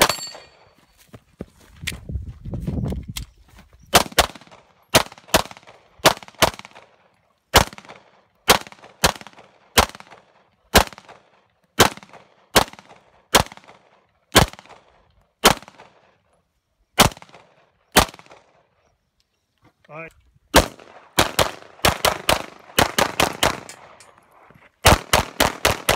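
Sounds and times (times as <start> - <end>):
handgun shots with echo: 20.6 - 24.2.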